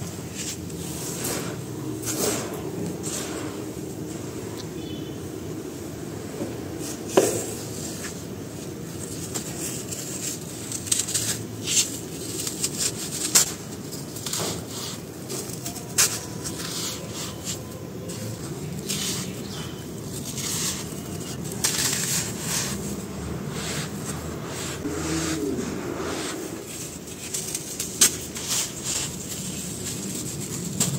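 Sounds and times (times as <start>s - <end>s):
gritty powder rustle: 6.7s - 30.9s.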